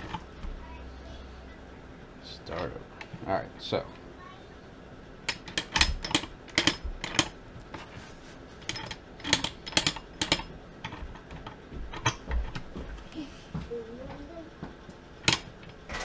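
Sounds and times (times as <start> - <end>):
metal gears clicking and clinking: 5.3 - 7.4, 8.7 - 12.6.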